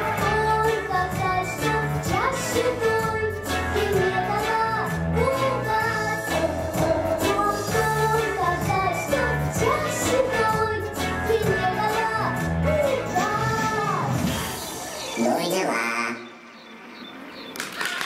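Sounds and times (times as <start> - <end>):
girl singing into microphone: 0.0 - 14.2
backing music with pulsing bass: 0.0 - 15.2.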